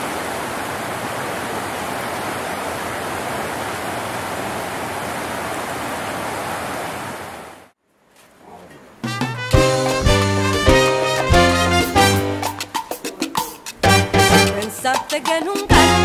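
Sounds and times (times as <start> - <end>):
river rushing over rapids: 0.0 - 7.6.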